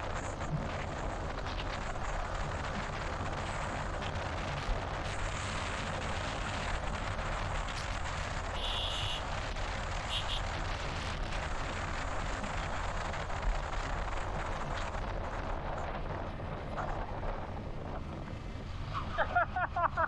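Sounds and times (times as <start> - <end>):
motorbike engine and road noise: 0.0 - 20.0
high electronic tone: 8.6 - 9.2, 10.1 - 10.4.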